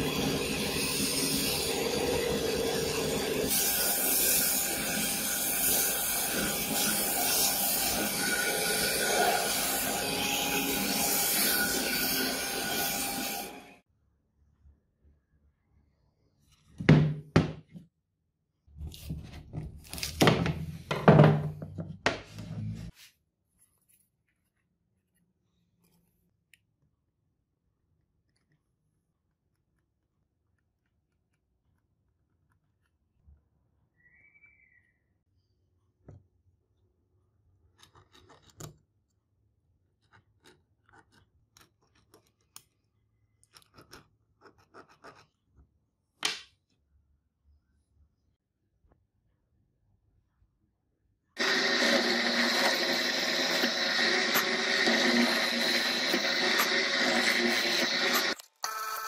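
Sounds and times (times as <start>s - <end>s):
pen scratching on wood: 43.6s - 45.4s.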